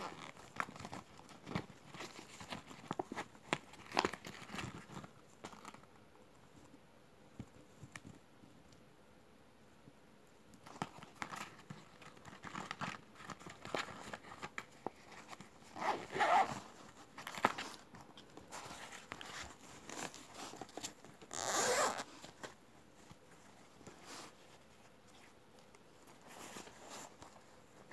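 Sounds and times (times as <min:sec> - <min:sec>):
fabric pouches rustling: 0:11.1 - 0:25.2
zip being pulled: 0:15.8 - 0:16.6, 0:21.3 - 0:22.1.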